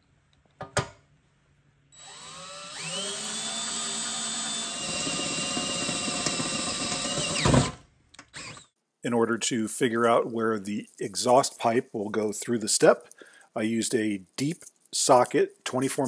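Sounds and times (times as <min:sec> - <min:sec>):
cordless drill whining: 0:02.0 - 0:08.7.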